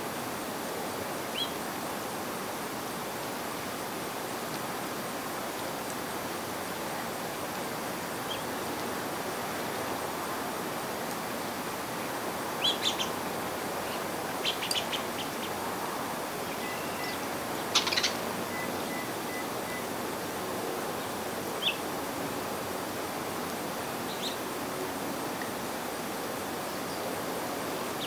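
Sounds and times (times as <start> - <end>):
steady background hiss: 0.0 - 28.0
songbirds chirping: 12.5 - 19.9, 20.8 - 22.0, 22.9 - 24.6.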